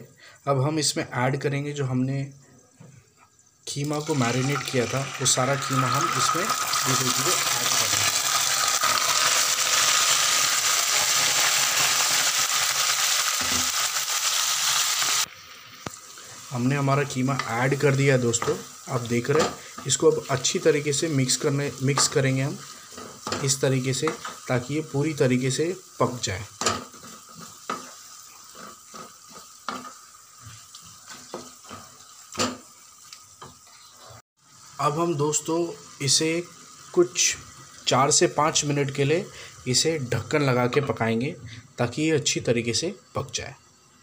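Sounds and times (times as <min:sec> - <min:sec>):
meat sizzling in hot oil: 0:03.8 - 0:41.2
spatula scraping and knocking pan: 0:26.6 - 0:32.7.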